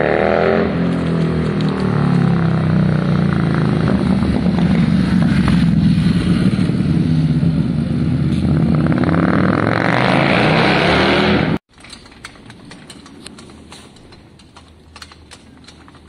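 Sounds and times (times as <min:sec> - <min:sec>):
motorcycle riding past: 0:00.0 - 0:11.6.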